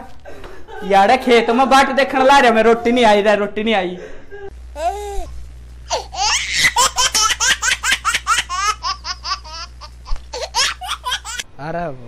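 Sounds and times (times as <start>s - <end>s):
high-pitched laughter: 5.9s - 11.4s.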